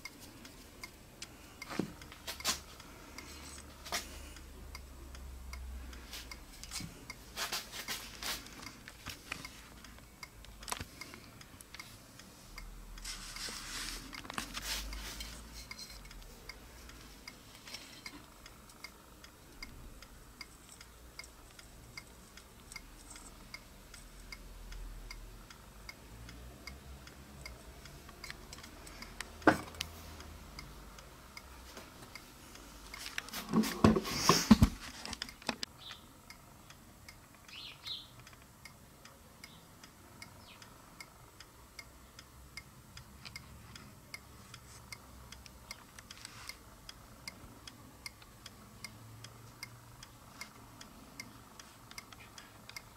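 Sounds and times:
faint regular ticking: 0.0 - 33.4, 35.1 - 52.9.

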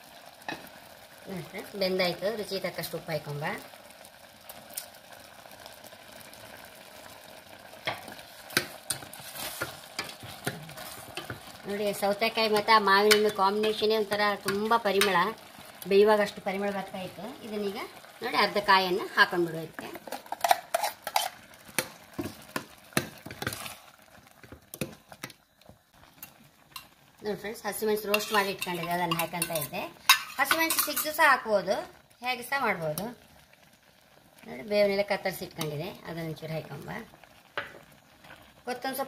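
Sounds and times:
pot simmering with bubbling hiss: 0.0 - 39.0
ladle clinking and scraping a pot: 7.9 - 11.5, 20.0 - 21.4, 28.1 - 31.2
ladle knocking and scraping pot: 20.0 - 23.8, 28.1 - 31.2.

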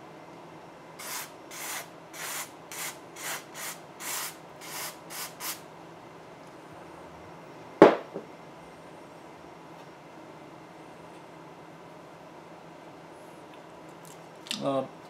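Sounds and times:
sharp knocks: 7.8 - 8.3.

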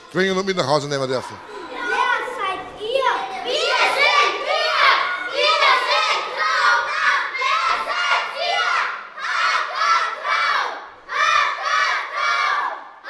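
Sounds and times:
boys chanting in unison: 1.5 - 13.0.

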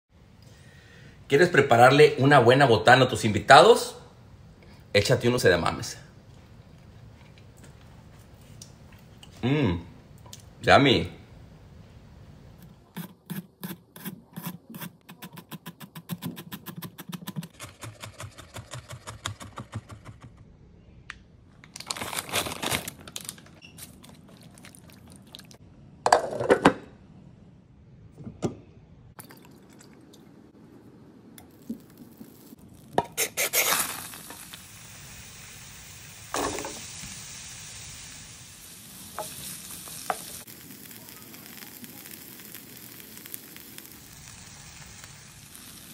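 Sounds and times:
food sizzling in a pan: 31.4 - 45.9.

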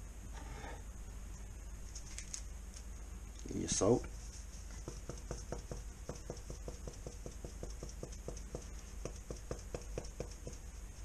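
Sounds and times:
salt shaker pattering: 4.1 - 11.0.

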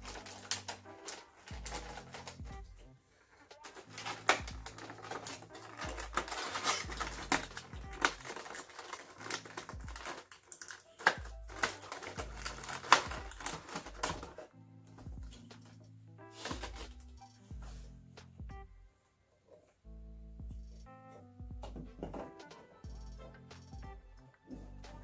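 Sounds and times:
plastic bag crinkling: 0.0 - 2.5, 3.6 - 14.5, 16.4 - 17.1
quiet background music: 0.0 - 25.0.

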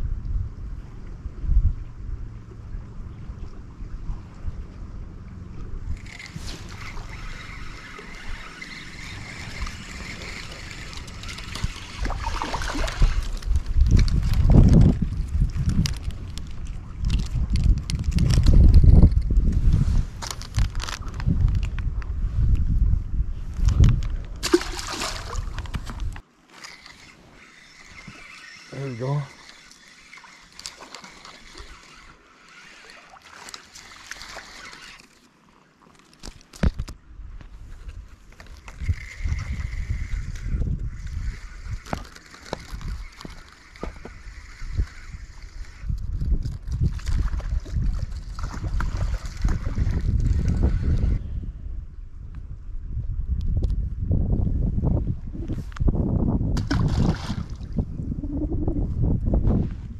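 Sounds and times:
wind on microphone: 0.0 - 26.2, 36.6 - 59.9
river water trickling and lapping: 0.7 - 19.3, 23.6 - 51.2, 56.6 - 58.4
fishing reel whirring: 5.6 - 19.4, 24.5 - 35.3, 38.4 - 51.2
fish splashing in water: 6.0 - 13.5, 24.4 - 25.9.

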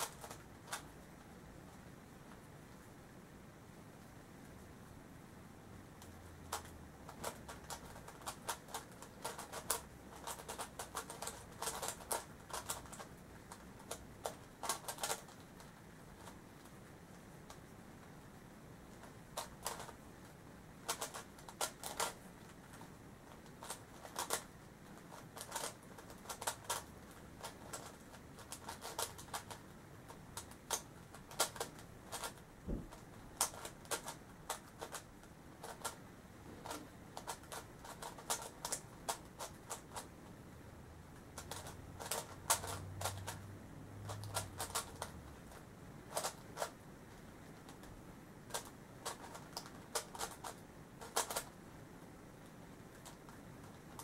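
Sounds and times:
puzzle cube plastic clicking: 0.0 - 0.9, 6.0 - 16.7, 18.9 - 20.0, 20.8 - 36.0, 36.6 - 40.1, 41.1 - 46.8, 47.4 - 51.6.

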